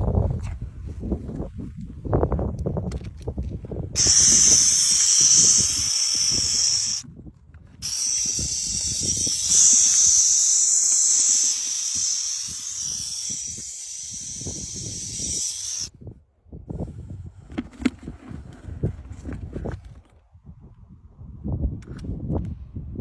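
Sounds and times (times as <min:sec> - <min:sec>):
owl chicks hissing: 0:04.0 - 0:07.0, 0:07.8 - 0:15.9.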